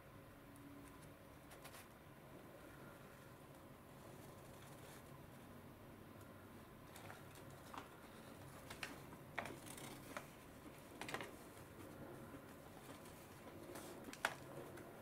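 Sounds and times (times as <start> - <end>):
low room hum: 0.0 - 15.0
paper wrapper crinkling: 6.9 - 11.9, 12.5 - 14.8.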